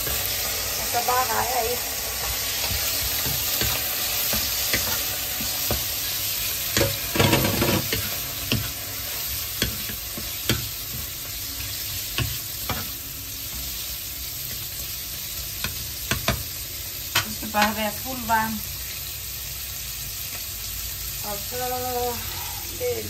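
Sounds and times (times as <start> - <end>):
prawns sizzling in hot oil: 0.0 - 23.0
wooden spatula scraping a wok: 1.2 - 13.7.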